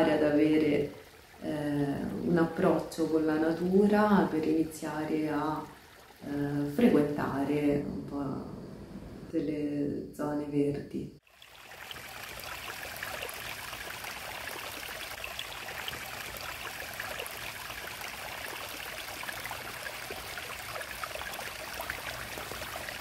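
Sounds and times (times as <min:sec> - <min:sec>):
stream trickling and splashing: 0:00.0 - 0:07.5, 0:11.2 - 0:23.0.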